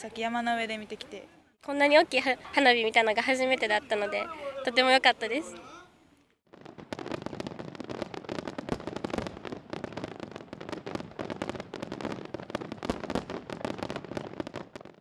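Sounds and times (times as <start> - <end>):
fireworks bangs and crackles: 6.5 - 15.0.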